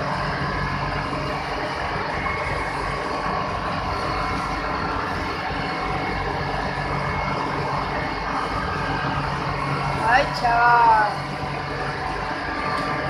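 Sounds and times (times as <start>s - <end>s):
faint steady hum tones: 0.0s - 13.0s
machinery rumbling: 0.0s - 13.0s.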